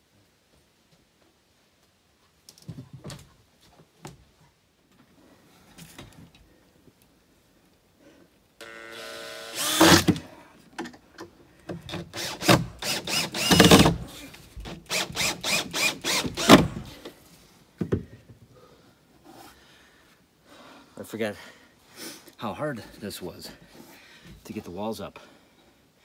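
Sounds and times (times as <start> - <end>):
cordless drill driving screws: 8.6 - 10.2, 11.9 - 14.0, 14.7 - 16.9.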